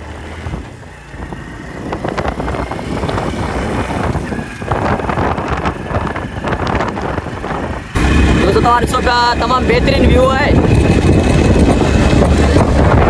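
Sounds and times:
motorcycle engine running: 0.0s - 13.0s
wind buffeting microphone: 0.0s - 13.0s.

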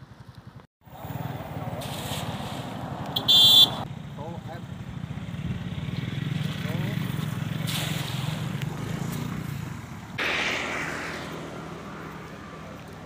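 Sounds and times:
engine hum: 3.8s - 13.0s
net splashing onto water: 7.6s - 8.8s.

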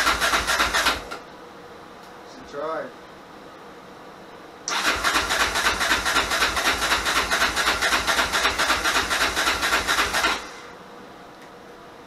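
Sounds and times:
atv engine cranking: 0.0s - 1.2s, 4.7s - 10.6s.

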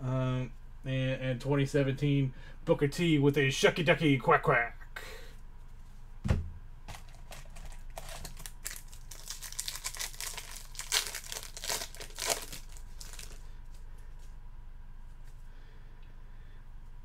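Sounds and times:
thump: 6.2s - 6.6s
wrapper crinkling: 6.9s - 13.8s.

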